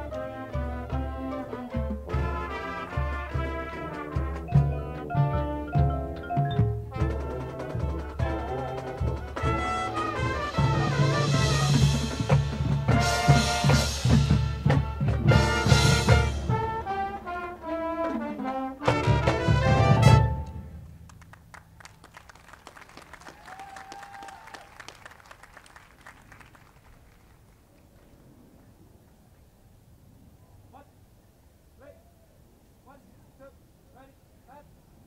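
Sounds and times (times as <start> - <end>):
marching band playing: 0.0 - 22.6.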